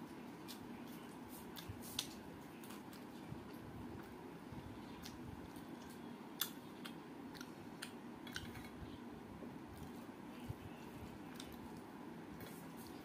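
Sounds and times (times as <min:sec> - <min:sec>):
faint steady background hum: 0:00.0 - 0:13.0
chewing: 0:04.9 - 0:08.8.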